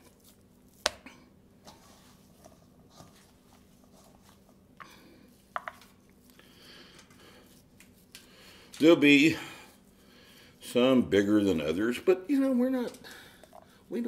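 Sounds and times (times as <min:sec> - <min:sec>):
faint steady hum: 0:00.0 - 0:14.0
hands shaping patties in metal bowl: 0:00.0 - 0:14.0.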